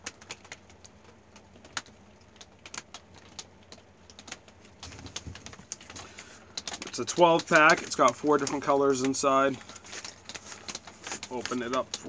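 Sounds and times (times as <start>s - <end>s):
plastic pouch crinkling: 4.2s - 12.0s.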